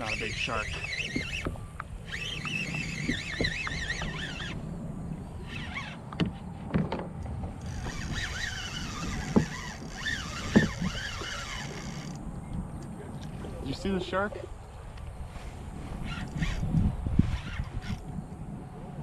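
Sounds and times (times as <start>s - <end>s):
fishing reel whining: 0.0s - 6.2s, 7.4s - 12.5s, 15.8s - 18.3s
sharp knocks: 10.4s - 11.0s.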